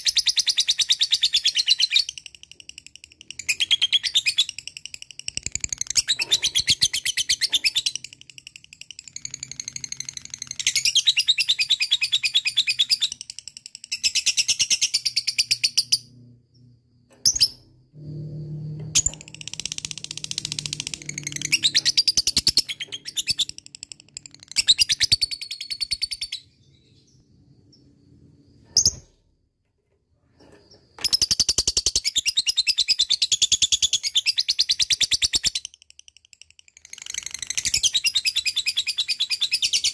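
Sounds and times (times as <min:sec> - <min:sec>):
lovebird chattering song: 0:19.0 - 0:27.2.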